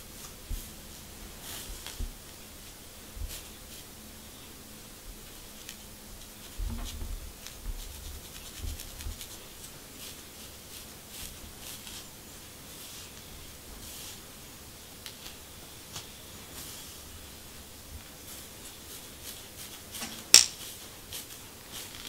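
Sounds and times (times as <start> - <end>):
comb scratching scalp: 5.3 - 12.1.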